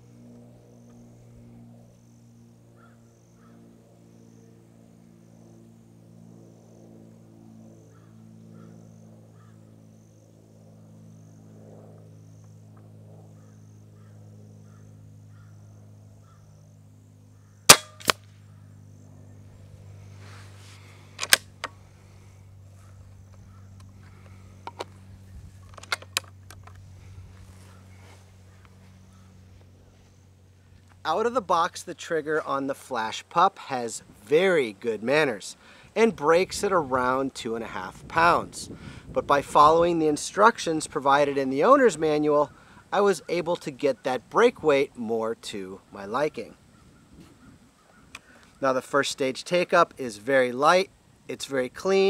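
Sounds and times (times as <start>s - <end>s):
faint low hum: 0.0s - 52.0s
air rifle shots cracking: 17.7s - 18.4s.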